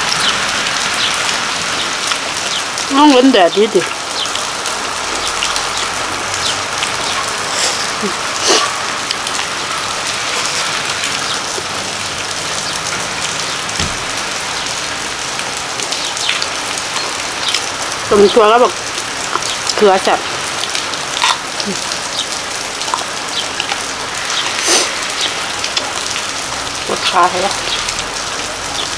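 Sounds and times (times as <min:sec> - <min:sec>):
rain falling: 0:00.0 - 0:28.9.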